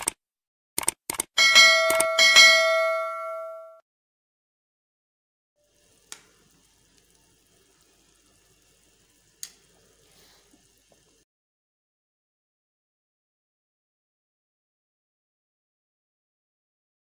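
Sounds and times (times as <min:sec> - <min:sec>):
sharp clicks: 0:00.0 - 0:00.2, 0:00.8 - 0:01.3
soup simmering and bubbling: 0:05.6 - 0:11.2.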